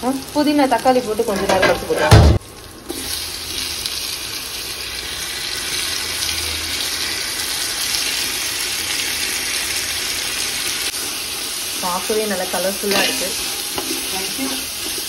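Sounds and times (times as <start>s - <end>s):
onions sizzling in oil: 0.0s - 15.0s
loud thump: 2.1s - 2.4s.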